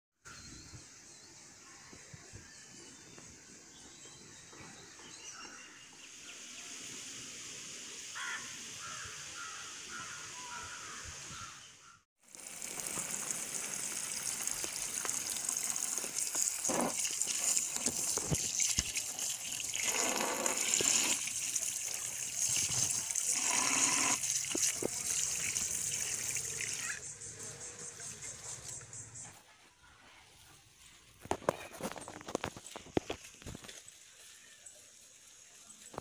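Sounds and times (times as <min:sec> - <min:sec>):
tap water splashing over fruit: 0:12.3 - 0:27.0.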